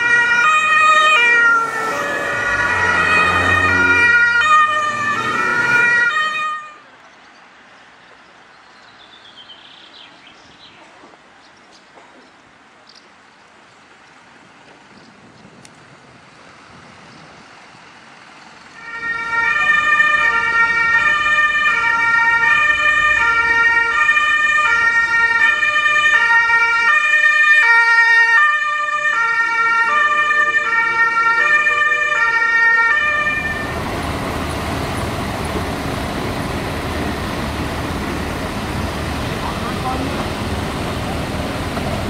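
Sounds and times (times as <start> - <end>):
two-tone police siren: 0.0 - 6.8, 18.8 - 41.5
traffic and engine noise: 0.0 - 42.0.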